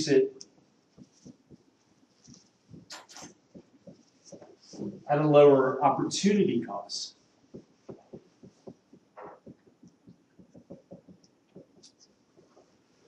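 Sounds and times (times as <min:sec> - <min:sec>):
marker writing on whiteboard: 0:00.0 - 0:05.0, 0:07.5 - 0:13.0
marker squeaks: 0:02.3 - 0:04.8, 0:07.9 - 0:12.6.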